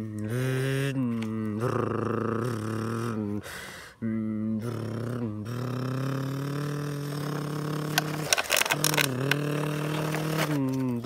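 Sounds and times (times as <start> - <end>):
person imitating engine drone: 0.0 - 11.0
plastic toy pieces clicking: 7.2 - 11.0.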